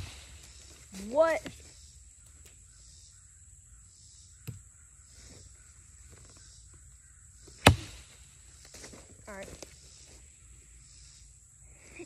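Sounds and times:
machete chopping wood: 0.0s - 0.5s, 7.6s - 8.2s
high-pitched insect hum: 0.0s - 12.0s.

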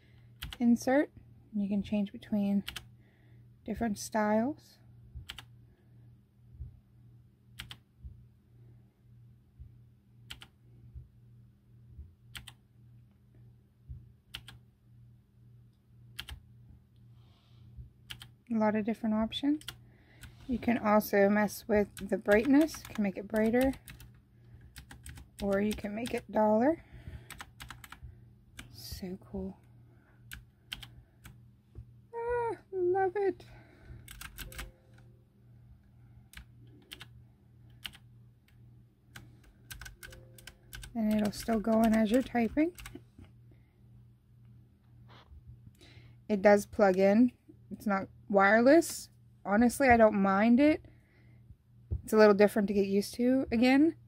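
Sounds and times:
low steady hum: 0.0s - 54.0s
clicky keyboard keystrokes: 5.3s - 5.5s, 7.6s - 7.8s, 12.4s - 12.6s, 14.3s - 14.6s, 16.2s - 16.4s, 24.8s - 26.2s, 27.3s - 28.0s, 34.1s - 34.7s, 39.7s - 43.0s.

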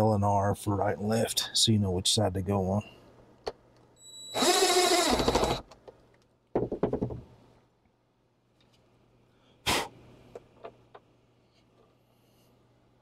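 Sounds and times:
cordless driver whirring: 4.4s - 5.6s.

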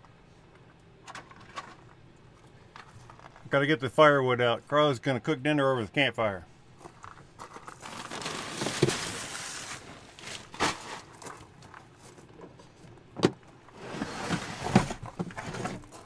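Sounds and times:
bag rustling: 7.0s - 12.2s.

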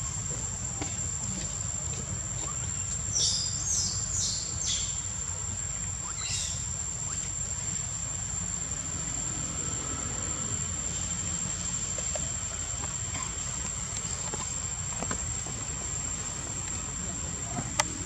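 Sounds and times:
high-pitched insect drone: 0.0s - 13.4s
low steady rumble: 0.0s - 18.0s.

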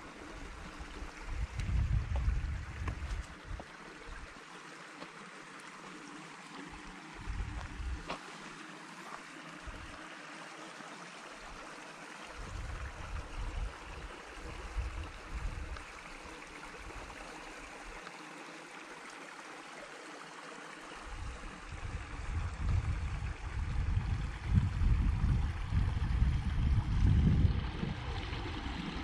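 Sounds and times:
low rumbling on microphone: 0.0s - 4.2s, 7.2s - 8.1s, 12.4s - 15.8s, 21.1s - 29.0s
stream rushing: 0.0s - 22.3s.

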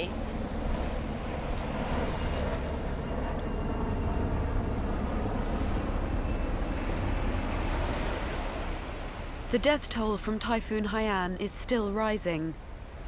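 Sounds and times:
distant helicopter rumble: 0.0s - 13.0s.

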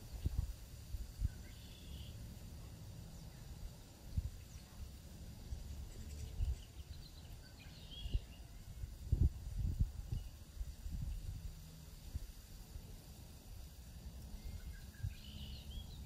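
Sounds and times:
birds chirping: 1.1s - 9.3s, 13.9s - 16.0s.

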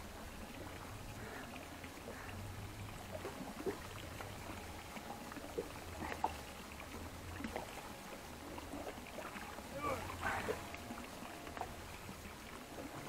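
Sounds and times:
water lapping against boat hull: 0.0s - 13.0s.

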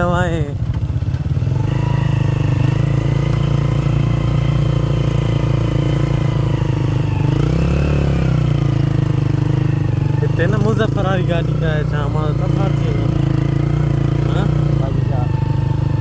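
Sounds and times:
small motorcycle engine running: 0.0s - 16.0s.

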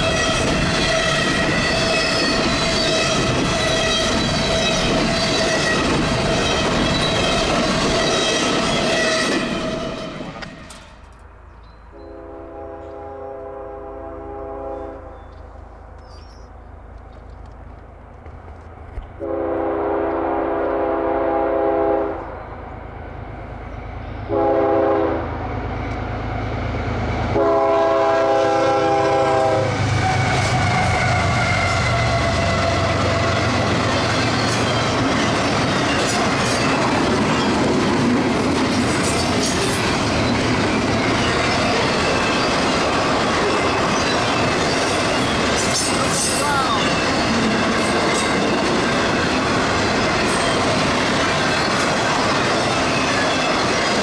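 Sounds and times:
train wheel clatter: 0.0s - 11.3s, 29.3s - 54.0s
diesel locomotive engine rumbling: 0.0s - 54.0s
train horn blasts: 11.9s - 15.3s, 19.2s - 22.4s, 24.3s - 25.4s, 27.3s - 33.0s.

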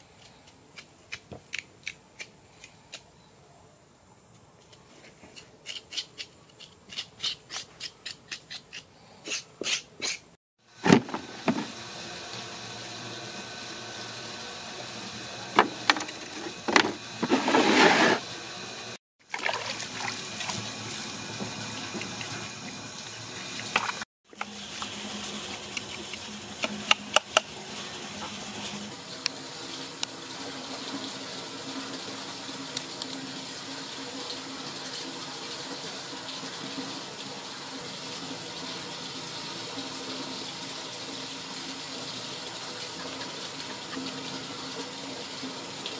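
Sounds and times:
water splashing in a basin: 19.2s - 22.8s.

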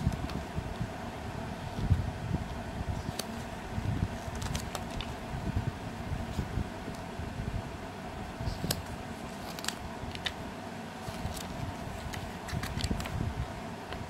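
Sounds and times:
steady background hum: 0.0s - 14.0s
paper pages rustling and flicking: 4.2s - 5.2s, 8.6s - 10.4s, 11.0s - 13.2s.

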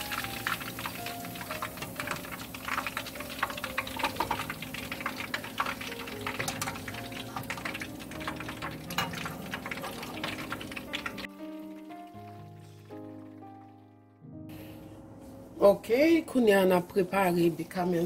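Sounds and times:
meatballs sizzling in hot oil: 0.0s - 13.4s
background music with held notes: 0.0s - 16.0s.

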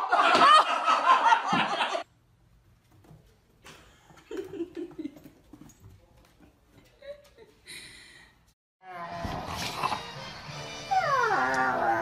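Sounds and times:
puppy whimpering: 10.9s - 12.0s.

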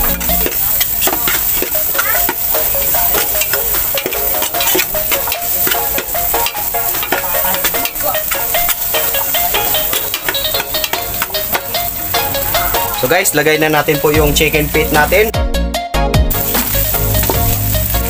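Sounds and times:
metal spatula scraping pot: 0.0s - 2.4s, 3.0s - 11.3s
vegetables sizzling in fat: 0.0s - 15.3s, 16.3s - 18.0s.

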